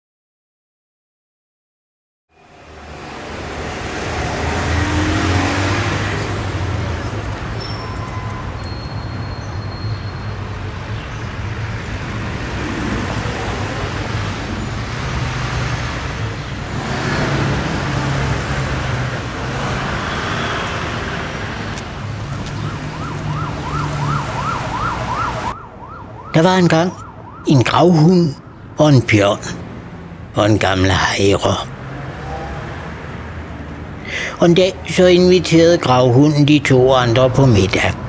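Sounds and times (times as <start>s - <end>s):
street traffic rumble: 2.3s - 38.0s
warbling emergency siren: 21.4s - 28.0s.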